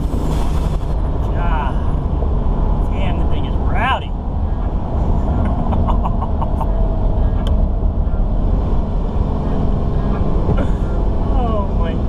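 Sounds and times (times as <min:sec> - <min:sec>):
diesel engine drone: 0:00.0 - 0:12.0
road noise: 0:00.0 - 0:12.0.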